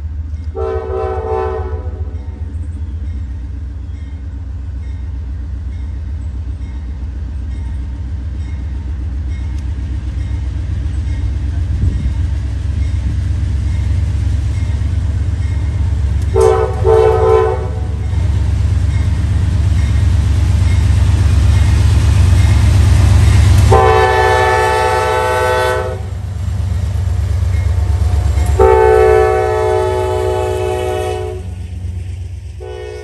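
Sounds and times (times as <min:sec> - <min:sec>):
locomotive engine rumble: 0:00.0 - 0:33.0
locomotive air horn blasts: 0:00.5 - 0:02.2, 0:16.3 - 0:18.1, 0:23.6 - 0:26.2, 0:28.1 - 0:31.6, 0:32.6 - 0:33.0.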